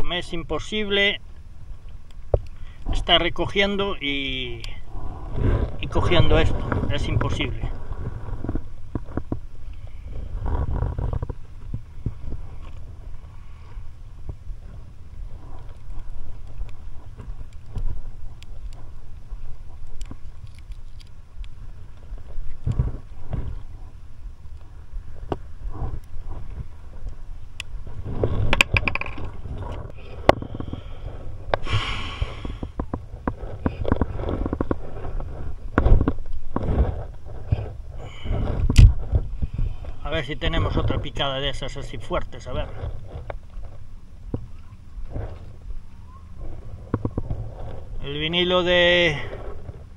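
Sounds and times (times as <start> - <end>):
wind rumble on microphone: 0.0 - 49.9
fishing rod handling noise: 15.4 - 23.8, 25.2 - 30.8.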